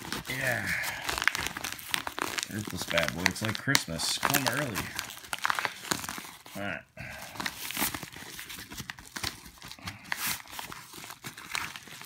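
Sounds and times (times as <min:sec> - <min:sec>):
packing paper crinkling: 0:00.0 - 0:12.0.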